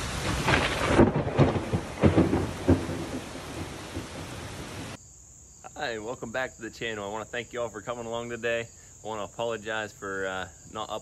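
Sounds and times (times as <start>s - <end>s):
heavy rain pouring: 0.0s - 5.0s
thunder: 0.0s - 5.0s.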